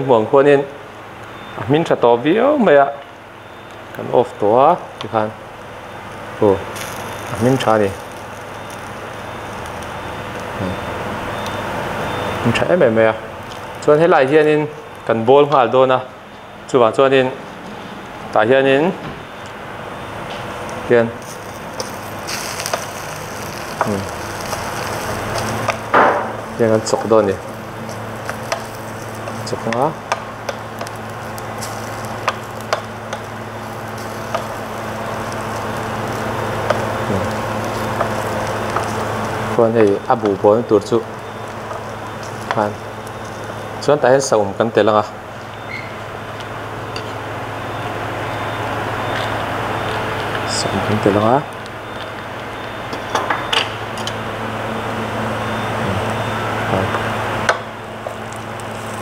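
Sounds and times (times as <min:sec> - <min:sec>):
steady low hum: 0:00.0 - 0:59.0
food sizzling in pot: 0:05.8 - 0:12.5, 0:20.0 - 0:43.9, 0:51.6 - 0:59.0
low hum: 0:19.0 - 0:43.8.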